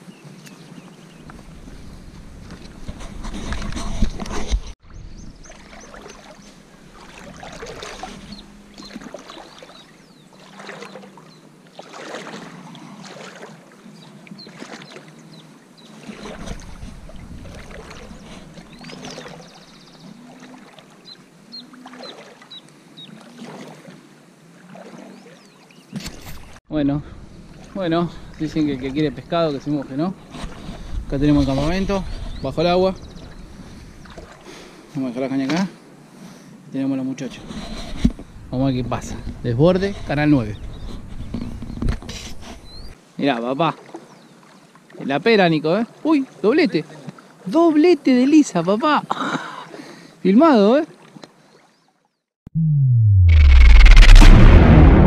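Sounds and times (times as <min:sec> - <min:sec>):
legs splashing through water: 0:01.3 - 0:26.6, 0:33.2 - 0:34.6.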